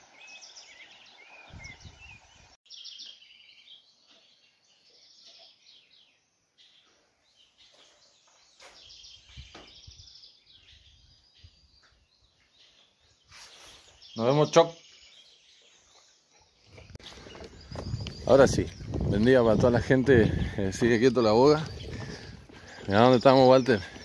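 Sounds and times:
birds chirping and trilling: 0:00.0 - 0:24.0
low thumps: 0:17.2 - 0:22.9.

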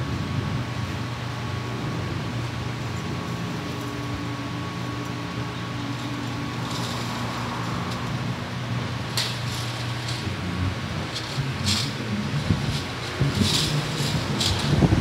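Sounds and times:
low machine hum: 0:00.0 - 0:15.0
metal strips rustling and clinking: 0:05.9 - 0:08.3, 0:09.0 - 0:15.0.

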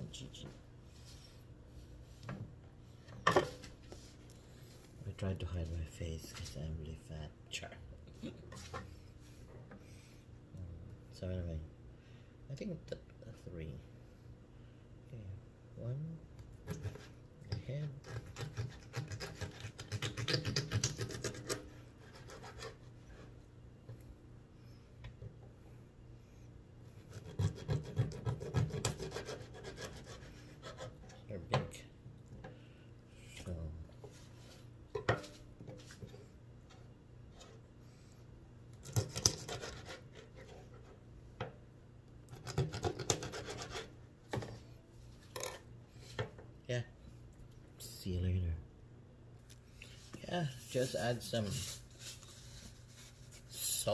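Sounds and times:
knife sawing through fish head: 0:18.0 - 0:22.8, 0:27.0 - 0:31.0, 0:38.8 - 0:40.2, 0:42.4 - 0:43.9.

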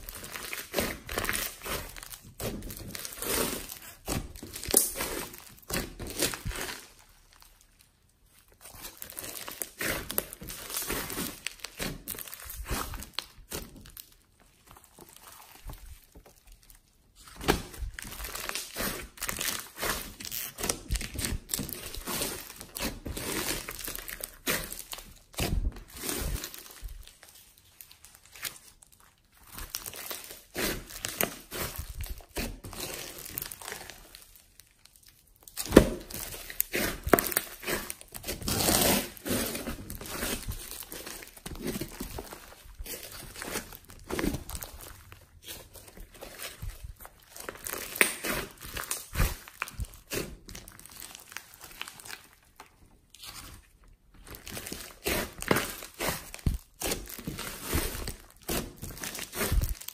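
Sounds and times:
foam-bead slime crunching: 0:00.0 - 0:59.9.

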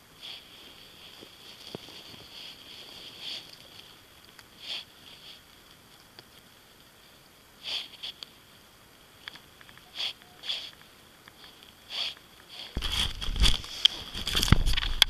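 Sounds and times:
person sniffing: 0:00.2 - 0:00.6, 0:02.4 - 0:03.5, 0:04.6 - 0:05.4, 0:07.6 - 0:08.2, 0:09.9 - 0:10.8, 0:11.4 - 0:13.0
camera handling rumble: 0:12.8 - 0:15.0.

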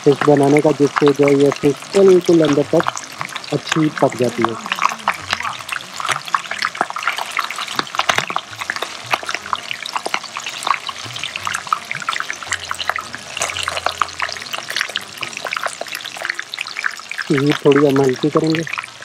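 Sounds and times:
fish sizzling in hot oil: 0:00.0 - 0:19.0.

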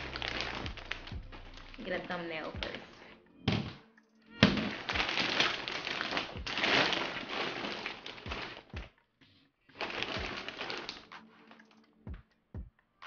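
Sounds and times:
plastic bags crinkling: 0:00.0 - 0:03.0, 0:04.4 - 0:08.9, 0:09.7 - 0:11.8.

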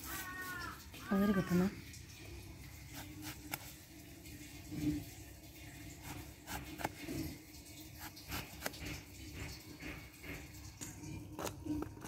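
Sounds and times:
blade scraping eggplant skin: 0:02.9 - 0:03.8, 0:06.0 - 0:07.2, 0:08.0 - 0:09.0.

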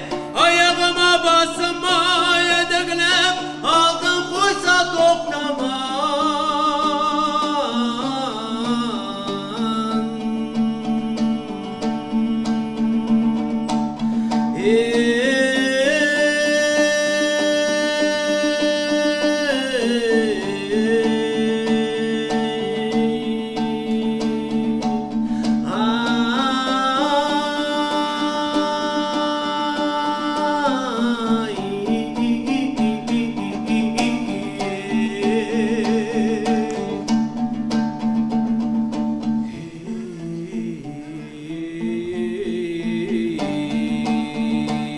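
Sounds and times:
man singing: 0:00.0 - 0:37.4, 0:39.4 - 0:44.9
plucked lutes playing: 0:00.0 - 0:44.9.

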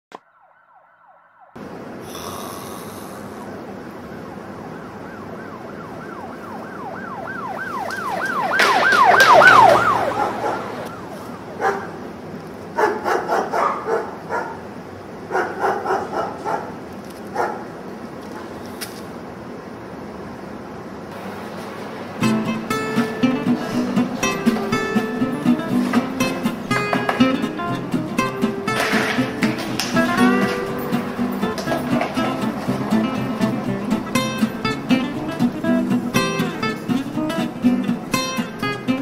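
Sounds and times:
emergency vehicle siren yelping: 0:00.1 - 0:01.6, 0:03.5 - 0:11.6.

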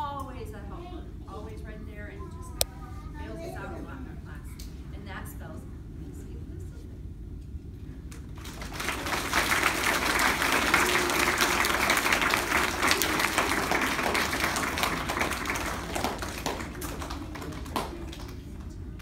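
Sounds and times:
children applauding: 0:08.4 - 0:18.8.

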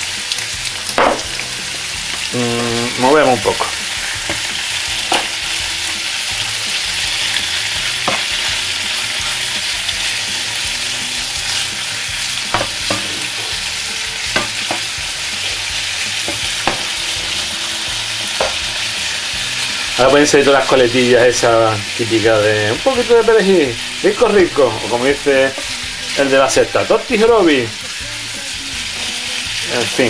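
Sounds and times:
beef sizzling in a pan: 0:00.0 - 0:30.0
metal tongs clicking on pan: 0:08.0 - 0:08.4, 0:12.5 - 0:13.3, 0:14.3 - 0:14.9.

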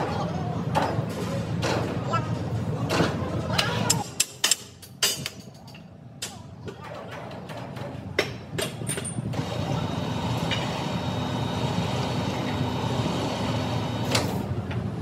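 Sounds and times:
mechanical running noise: 0:09.2 - 0:15.0.

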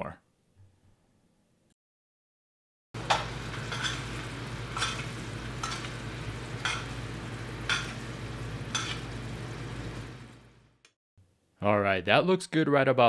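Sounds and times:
sauce sizzling in frying pan: 0:03.0 - 0:10.7.

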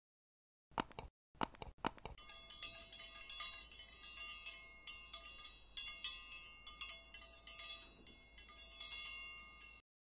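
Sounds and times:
bright high chime strikes: 0:02.2 - 0:09.8.

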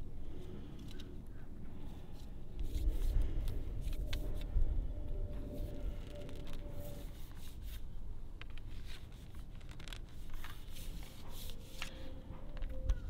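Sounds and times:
low rumble: 0:00.0 - 0:08.5.

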